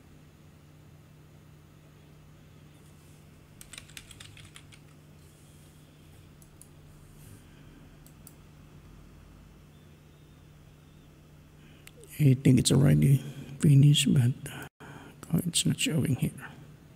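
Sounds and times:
faint keyboard typing: 3.6 - 5.1.

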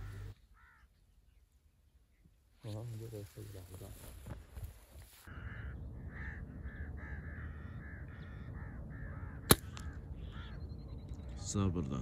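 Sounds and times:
bird calling: 0.0 - 1.4, 5.2 - 12.0.

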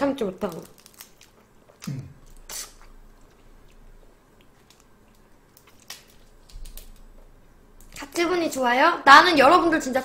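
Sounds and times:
person peeling and chewing shrimp: 0.4 - 7.9
soft clicks and squishes: 2.8 - 8.0.

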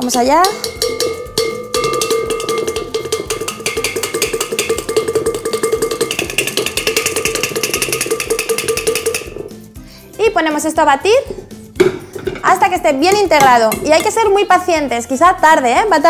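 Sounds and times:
metal sieve tapping rattle: 0.1 - 9.7, 11.8 - 14.3.

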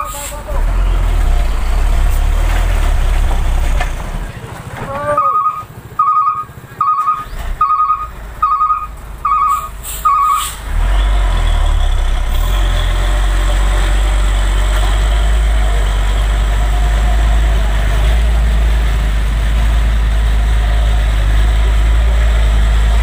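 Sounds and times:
heavy truck engine rumbling: 0.0 - 23.0
truck reversing alarm beeps: 5.1 - 10.6.

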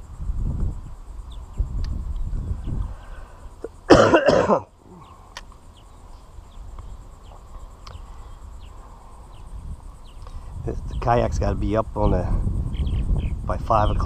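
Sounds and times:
person coughing: 3.9 - 4.7.

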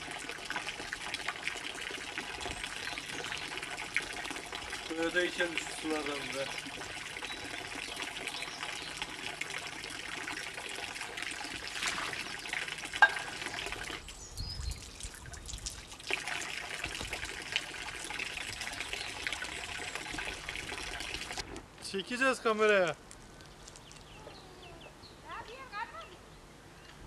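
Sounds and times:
fountain water splashing into basin: 0.0 - 21.4
hands washing in water stream: 11.3 - 14.1.

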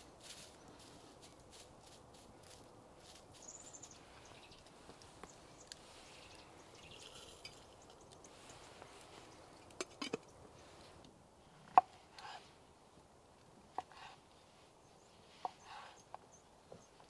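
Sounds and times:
bird chirp: 3.3 - 10.7, 14.8 - 17.0.

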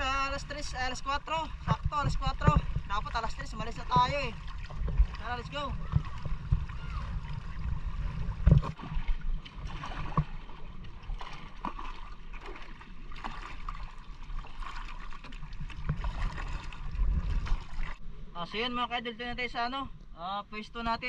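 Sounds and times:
wind rumble on microphone: 0.0 - 10.4, 15.5 - 18.0
paddles splashing in water: 0.0 - 18.0
water gurgling around hull: 0.0 - 18.3.

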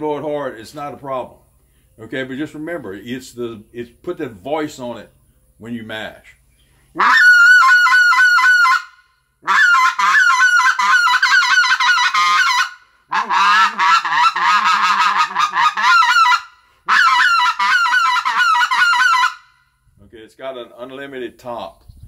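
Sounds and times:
goose call honks and clucks: 7.0 - 19.5.

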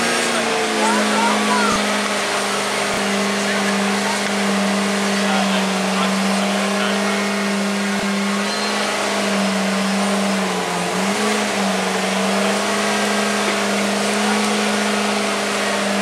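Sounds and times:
engine and hydraulic pumps humming: 0.0 - 16.0.

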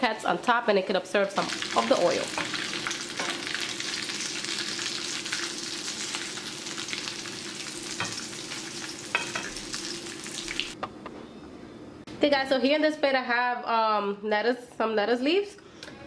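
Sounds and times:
oil sizzling in a pan: 1.3 - 10.8.

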